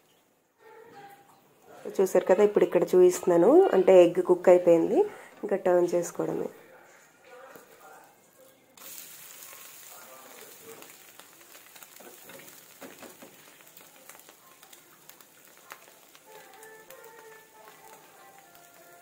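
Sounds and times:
egg dosa sizzling on pan: 8.8 - 19.0.

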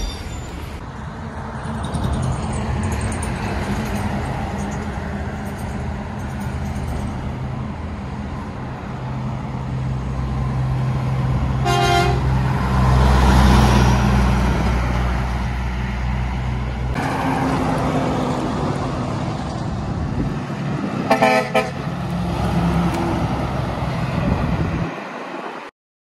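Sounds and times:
heavy trucks driving past: 0.0 - 25.7
vehicle horn toots: 11.6 - 12.3, 21.1 - 21.8.

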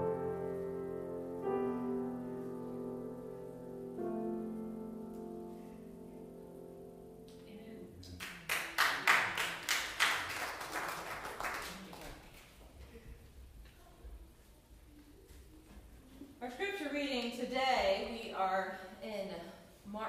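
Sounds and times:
keyboard chords ringing: 0.0 - 7.5
small group applauding: 8.0 - 13.0.

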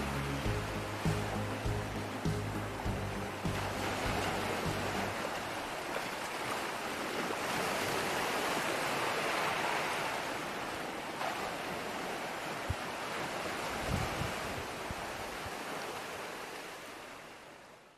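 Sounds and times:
background music: 0.0 - 5.6
sea surf on rocky shore: 0.0 - 17.9.

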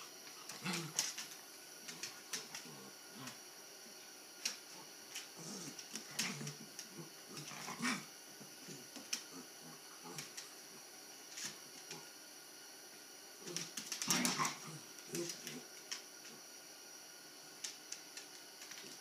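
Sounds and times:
puppies growling and grunting: 0.0 - 3.5, 4.7 - 10.4, 13.4 - 15.7.

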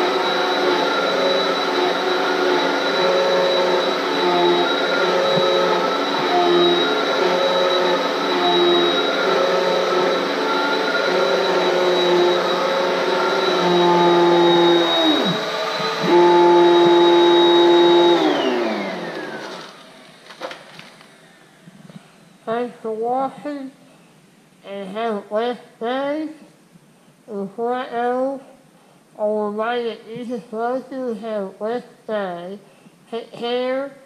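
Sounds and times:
vacuum motor winding down: 0.0 - 19.8
vacuum cleaner running: 0.0 - 20.5.

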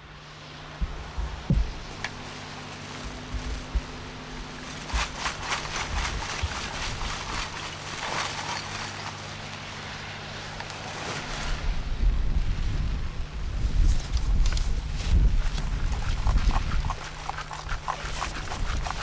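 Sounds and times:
charcoal clattering into sack: 4.7 - 9.6.

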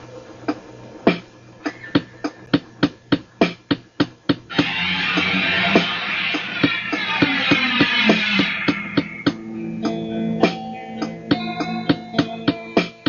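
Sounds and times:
sharp percussive hits: 3.4 - 9.5
distorted electric guitar band: 4.4 - 13.0.

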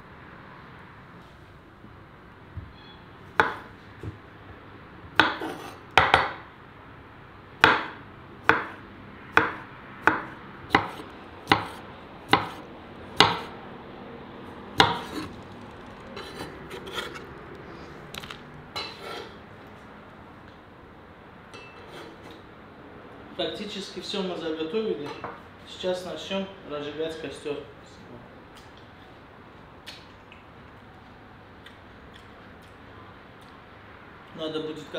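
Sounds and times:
knife chopping on cutting board: 3.4 - 3.7, 5.2 - 6.4, 7.6 - 8.8, 9.4 - 12.6, 13.2 - 13.5, 14.8 - 15.3.

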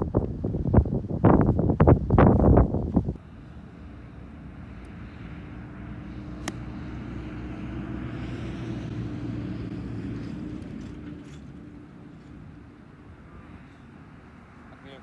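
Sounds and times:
low engine drone: 3.2 - 14.6
golf club striking ball: 6.3 - 6.9.

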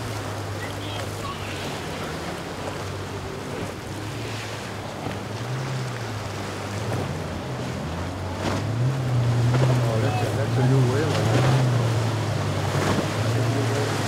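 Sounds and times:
outboard motor drone: 0.0 - 14.0
water breaking: 0.0 - 14.0.

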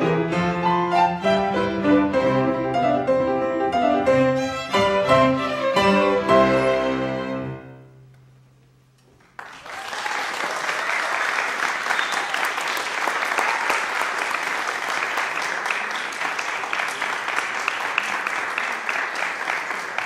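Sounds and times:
piano and strings chord: 0.0 - 8.1
audience applauding: 9.2 - 20.0.

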